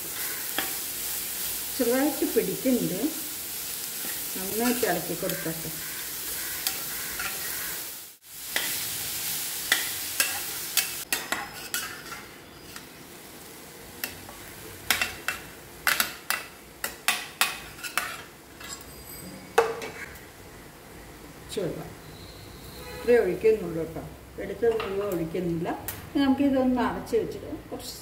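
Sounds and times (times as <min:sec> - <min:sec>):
food sizzling in a pan: 0:00.0 - 0:25.9
metal spoon stirring and scraping: 0:03.9 - 0:07.8, 0:09.7 - 0:12.9, 0:14.9 - 0:20.1.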